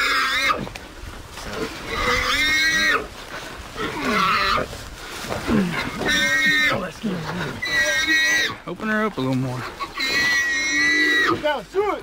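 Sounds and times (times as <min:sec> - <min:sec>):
hog squealing: 0:05.9 - 0:06.8, 0:07.6 - 0:08.6, 0:09.6 - 0:11.5.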